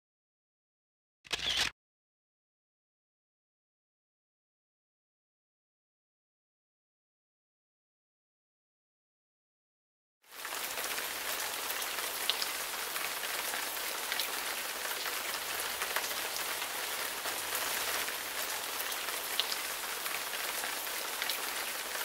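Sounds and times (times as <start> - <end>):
waterfall spattering onto rocks: 10.3 - 22.0.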